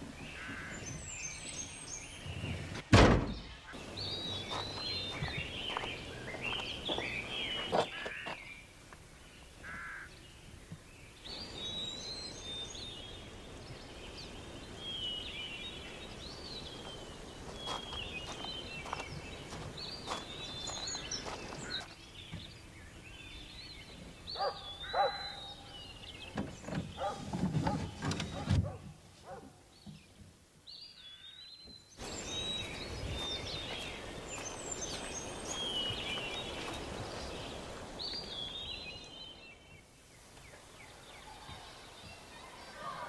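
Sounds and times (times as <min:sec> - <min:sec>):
birds chirping: 0:00.0 - 0:43.0
knocks and thuds: 0:02.8 - 0:03.5.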